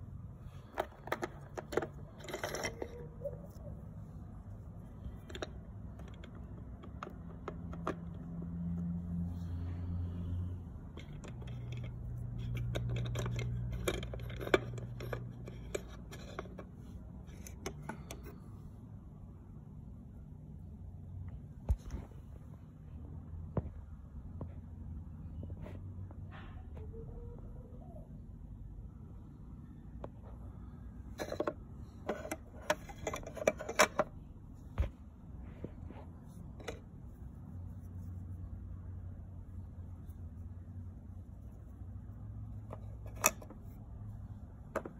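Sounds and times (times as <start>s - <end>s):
low steady hum: 0.0s - 44.9s
plastic toys clicking and clattering: 0.6s - 3.4s, 5.0s - 8.4s, 10.9s - 18.4s, 31.2s - 34.1s, 36.6s - 36.8s.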